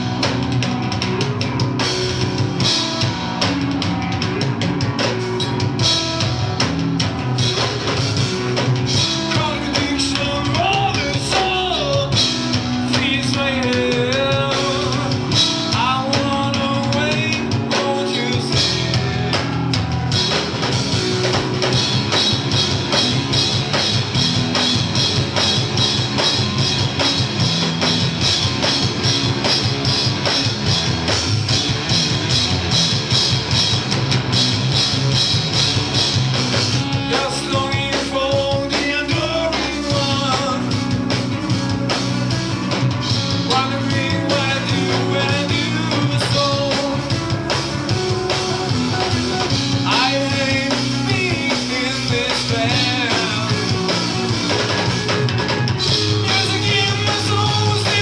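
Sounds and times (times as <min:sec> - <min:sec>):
live rock band playing: 0:00.0 - 0:58.0
man singing: 0:08.8 - 0:19.6, 0:36.8 - 0:41.2, 0:43.2 - 0:54.6, 0:55.8 - 0:58.0.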